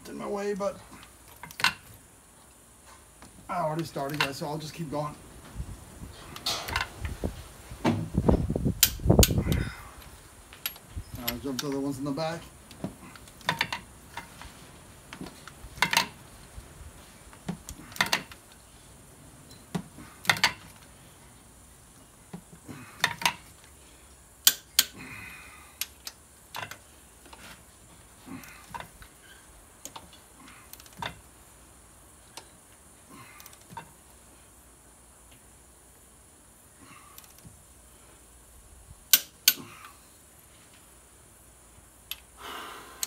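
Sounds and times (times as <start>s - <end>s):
tool handling noise: 6.2s - 7.2s, 12.7s - 16.2s, 19.5s - 20.9s, 25.8s - 27.7s
torque wrench clicks: 8.8s - 9.6s, 24.4s - 25.0s.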